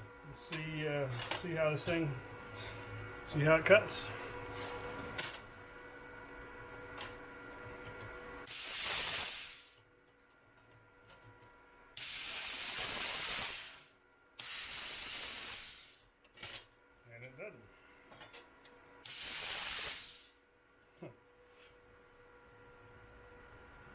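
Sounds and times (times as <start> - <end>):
compressed air hissing from torch: 8.4 - 9.8, 12.0 - 16.1, 19.0 - 20.4.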